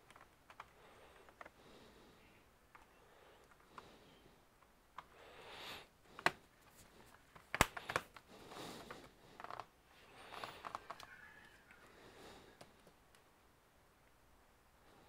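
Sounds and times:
soft rubbing and rustling: 6.1 - 11.8.

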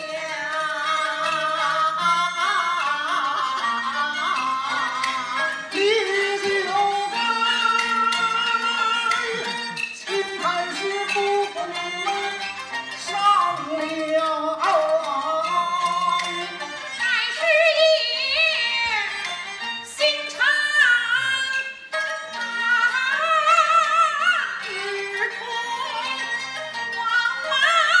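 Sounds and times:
opera singing with heavy vibrato: 0.0 - 12.4
bowed fiddle: 0.0 - 28.0.

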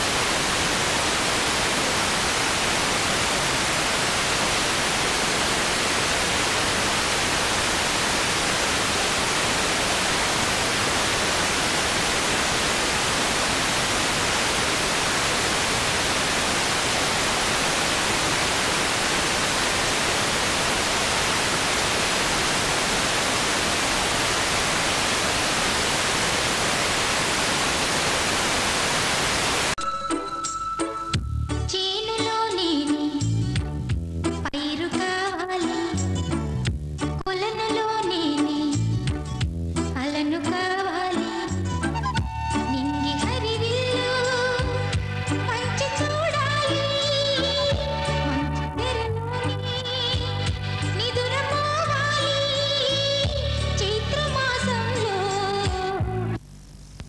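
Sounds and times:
static hiss: 0.0 - 57.0
music: 29.8 - 56.4.

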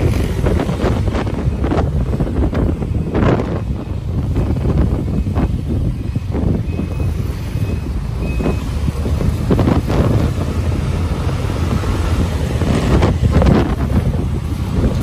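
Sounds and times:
engine and traffic rumble: 0.0 - 15.0
wind buffeting microphone: 0.0 - 15.0
faint high beep: 6.7 - 8.7.

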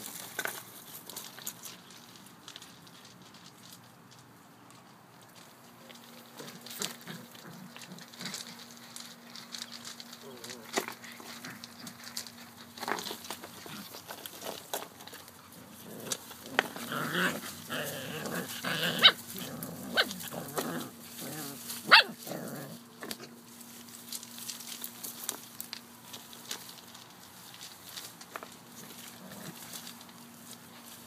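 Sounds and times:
rustling in leaves and gravel: 0.0 - 31.0
puppies growling at play: 6.1 - 23.4, 28.6 - 30.2.

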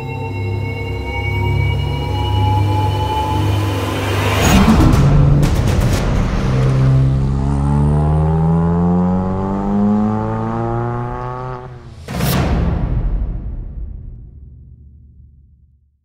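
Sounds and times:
car engine accelerating: 2.0 - 12.1
loud rushing hit: 3.0 - 8.6, 11.7 - 15.0.

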